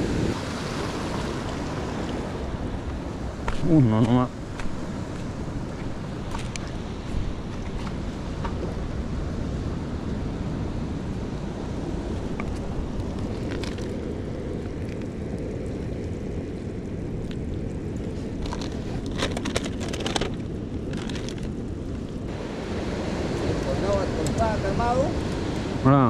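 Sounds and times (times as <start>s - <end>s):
surf rushing: 0.0s - 15.0s, 22.2s - 26.0s
wind buffeting microphone: 0.0s - 26.0s
plastic bag crackling: 18.4s - 21.6s.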